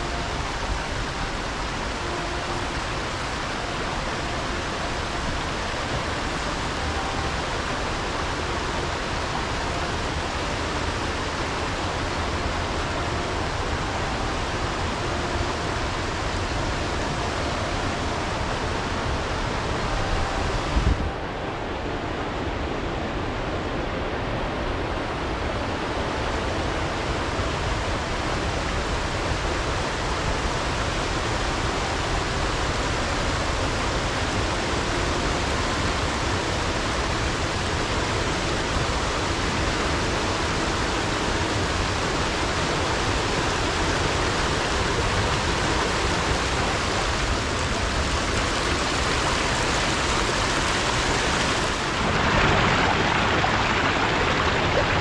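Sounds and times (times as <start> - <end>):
river rapids rushing: 0.0 - 55.0
small waterfall pouring: 27.2 - 55.0.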